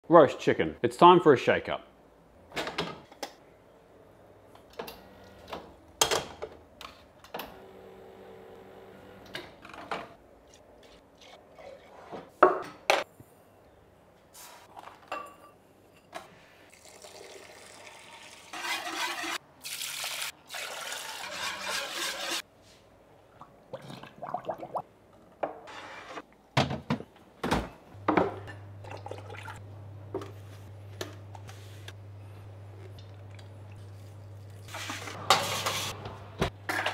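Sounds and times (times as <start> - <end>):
liquid poured into pot: 16.7 - 21.6.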